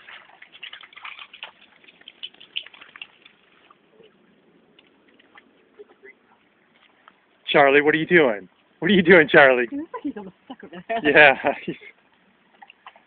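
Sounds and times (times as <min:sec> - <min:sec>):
dog splashing through water: 0:00.0 - 0:04.2.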